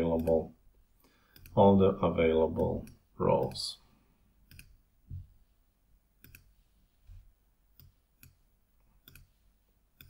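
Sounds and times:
computer mouse clicking: 0:00.1 - 0:00.4, 0:01.3 - 0:01.6, 0:04.4 - 0:04.8, 0:06.2 - 0:06.5, 0:07.7 - 0:08.4, 0:09.0 - 0:09.4.

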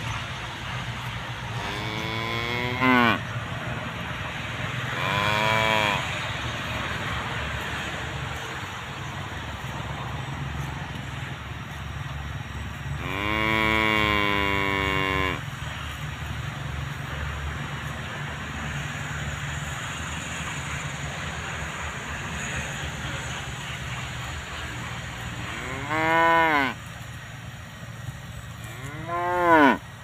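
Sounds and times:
cow mooing: 0:01.5 - 0:03.2, 0:04.9 - 0:06.1, 0:13.0 - 0:15.4, 0:25.4 - 0:26.8, 0:28.7 - 0:29.8.

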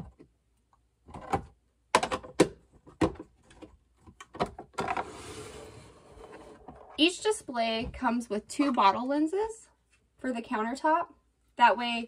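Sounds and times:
rustling slide: 0:05.0 - 0:06.6.

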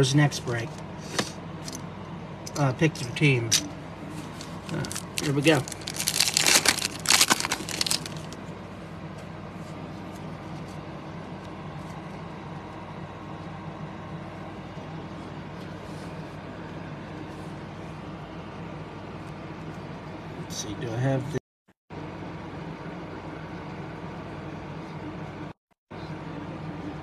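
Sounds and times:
steady low hum: 0:00.0 - 0:27.0
plastic foil wrapper tearing: 0:04.4 - 0:08.4.

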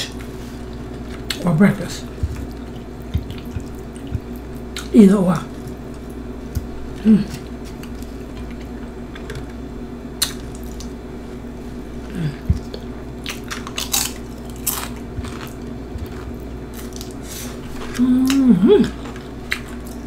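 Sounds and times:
person humming: 0:07.0 - 0:07.5, 0:12.0 - 0:12.7, 0:17.8 - 0:19.0
bite into crunchy chip: 0:12.7 - 0:20.0
crunchy chips breaking: 0:13.2 - 0:17.2.

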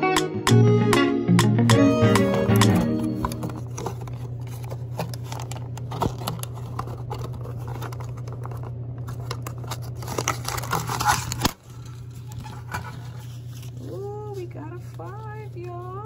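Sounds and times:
steady low hum: 0:01.8 - 0:16.0
plastic parts clicking and tapping: 0:02.1 - 0:11.6.

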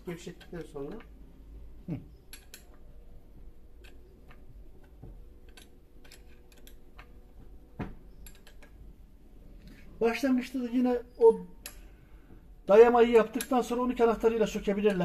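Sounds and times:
spanner clicking on metal: 0:02.3 - 0:02.8, 0:04.8 - 0:07.1, 0:08.2 - 0:08.8, 0:13.2 - 0:13.8.

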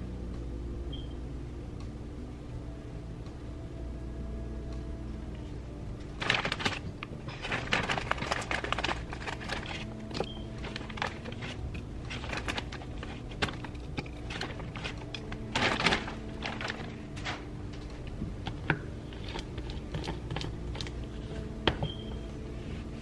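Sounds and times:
plastic bag crinkling: 0:06.1 - 0:21.4
frozen fruit clattering into blender: 0:06.2 - 0:17.5.

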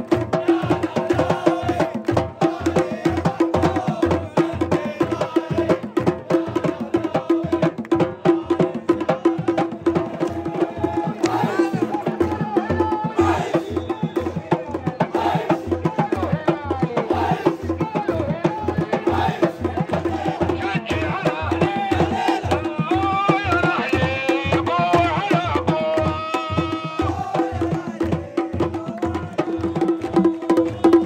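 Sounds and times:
crowd singing a chant: 0:00.0 - 0:31.0
hand drums beating: 0:00.0 - 0:31.0.

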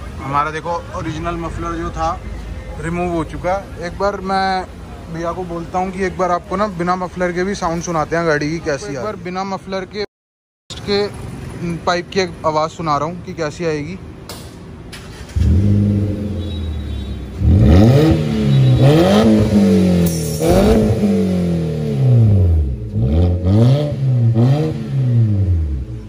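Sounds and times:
car engine revving through bare pipe: 0:15.3 - 0:26.0.

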